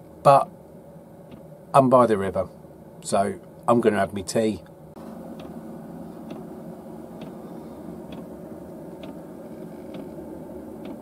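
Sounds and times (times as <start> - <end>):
low room tone hum: 0.0 - 11.0
faint soft ticking: 4.6 - 11.0.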